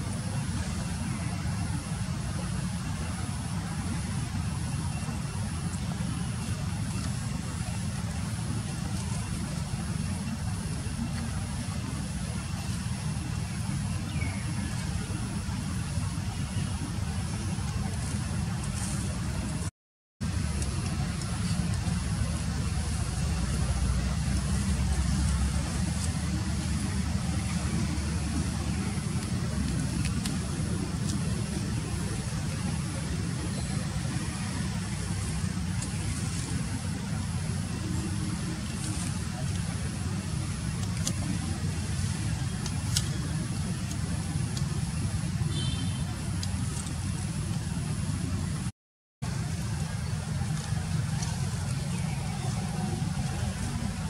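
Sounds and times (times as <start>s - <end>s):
steady low rumble: 0.0s - 54.0s
faint hiss: 20.3s - 48.7s.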